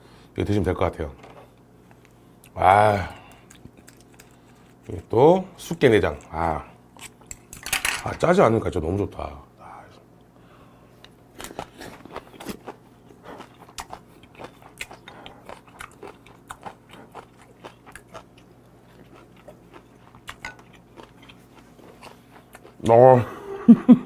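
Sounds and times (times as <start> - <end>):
person chewing raw crab: 3.2 - 5.0, 6.1 - 7.6, 11.0 - 22.9.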